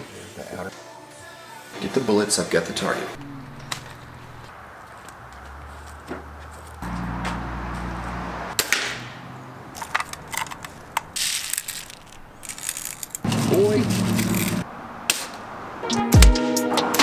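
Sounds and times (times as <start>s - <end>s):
background music bass line: 15.9s - 17.0s.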